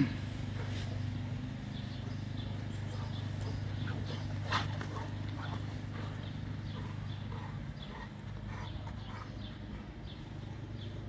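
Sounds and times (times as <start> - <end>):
steady low hum: 0.0 - 11.0
dog breathing: 3.0 - 10.6.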